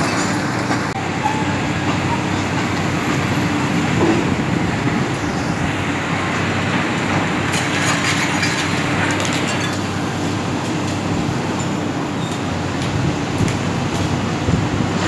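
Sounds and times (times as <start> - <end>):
excavators diesel drone: 0.0 - 15.0
concrete rubble scraping and clinking: 7.5 - 10.0.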